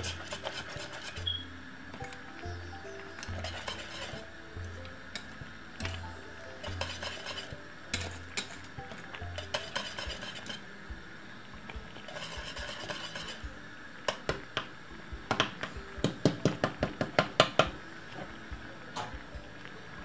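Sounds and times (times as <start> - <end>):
whisk clinking against metal pot: 0.0 - 1.4, 3.2 - 4.3, 5.1 - 10.6, 12.1 - 13.4.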